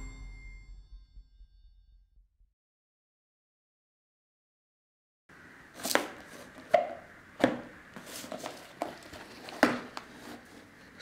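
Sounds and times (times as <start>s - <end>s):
cardboard scraping rustles: 5.8s - 11.0s
cardboard box knocking: 8.8s - 10.0s.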